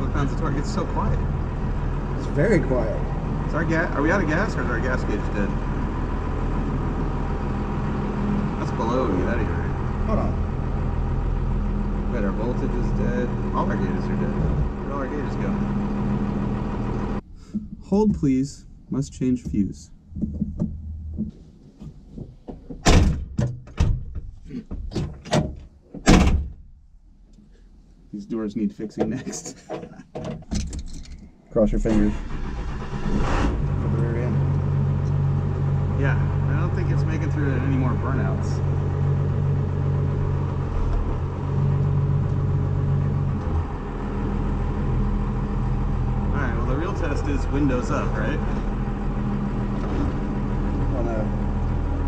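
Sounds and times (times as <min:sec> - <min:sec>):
diesel truck engine drone: 0:00.0 - 0:21.3, 0:31.6 - 0:52.0
heavy thunks: 0:14.3 - 0:14.8, 0:19.2 - 0:26.7
knocks and clunks in a truck cab: 0:19.3 - 0:26.7, 0:29.0 - 0:31.2.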